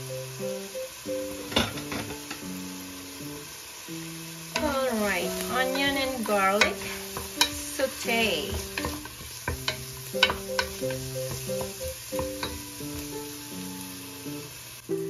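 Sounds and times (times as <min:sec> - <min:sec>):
background music: 0:00.0 - 0:15.0
onions sizzling: 0:00.0 - 0:15.0
spatula knocking and scraping pot: 0:05.6 - 0:12.8.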